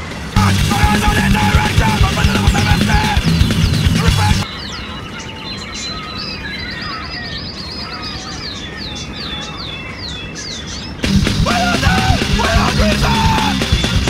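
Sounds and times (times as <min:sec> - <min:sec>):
loud rock music: 0:00.0 - 0:04.5, 0:11.0 - 0:14.0
small birds chirping: 0:00.4 - 0:14.0.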